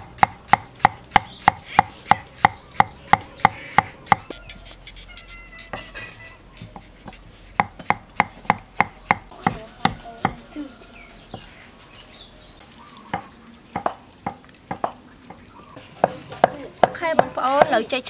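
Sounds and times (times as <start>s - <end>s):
knife chopping on wooden board: 0.0s - 4.3s, 5.6s - 10.4s, 13.1s - 17.8s.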